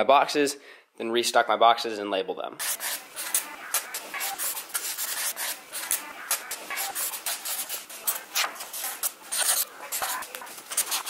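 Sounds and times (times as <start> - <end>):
marker scratching on paper: 2.6 - 11.0.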